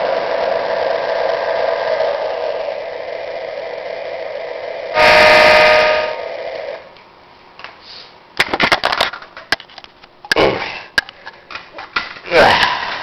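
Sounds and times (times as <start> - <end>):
toy train motor whirring: 0.0 - 6.9
electronic train horn: 4.9 - 6.9.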